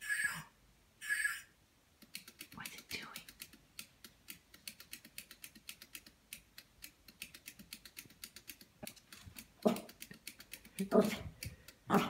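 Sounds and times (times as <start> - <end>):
toy robot clicking on wood floor: 2.0 - 11.8.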